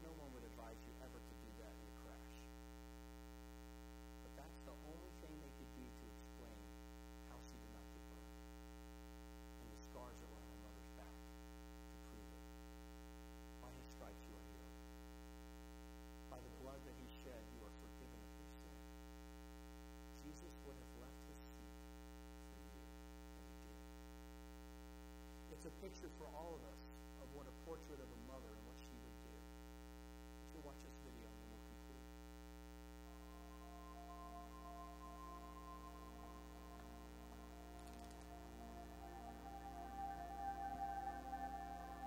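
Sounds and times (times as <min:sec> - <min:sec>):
electrical mains hum: 0:00.0 - 0:42.0.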